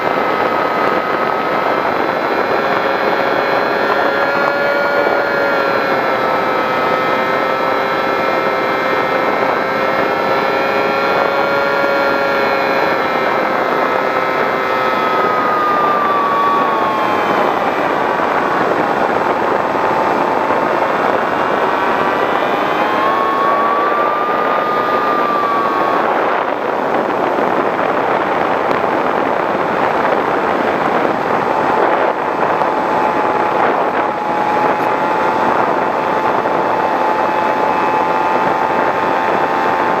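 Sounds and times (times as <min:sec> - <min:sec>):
electric motor propeller whine: 0:00.0 - 0:40.0
rushing air: 0:11.0 - 0:40.0.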